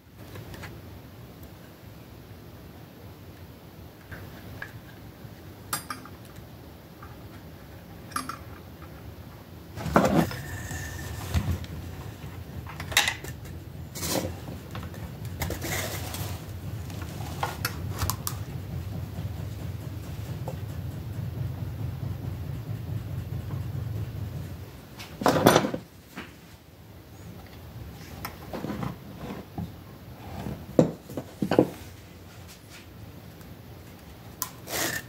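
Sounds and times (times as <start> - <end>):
low steady hum: 0.0 - 35.0
clinks and knocks of handled parts: 8.0 - 9.0.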